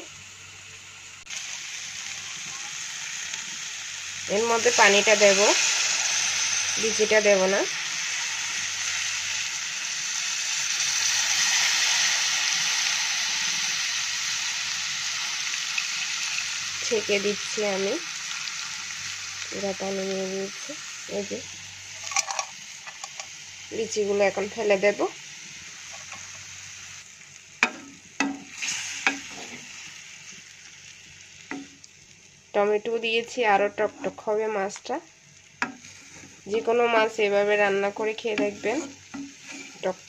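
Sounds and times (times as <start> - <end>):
liquid sizzling in hot pan: 0.0 - 40.0
wooden spatula stirring: 38.3 - 40.0.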